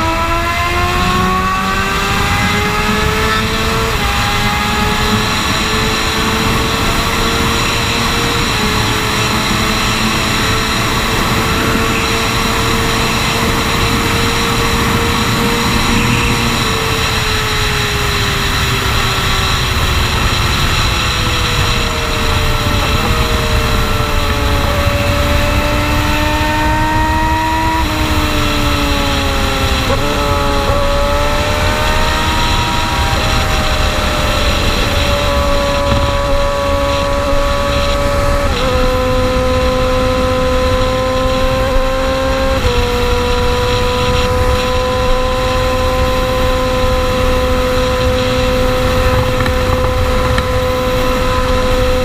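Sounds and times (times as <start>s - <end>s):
heavy wind noise: 0.0s - 52.0s
motorcycle engine at speed: 0.0s - 52.0s.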